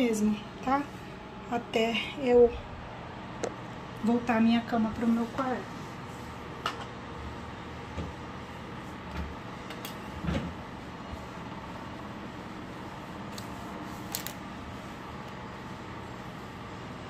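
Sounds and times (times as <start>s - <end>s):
steady background hum: 0.0s - 17.0s
cloth wiping countertop: 4.6s - 6.6s, 7.2s - 17.0s.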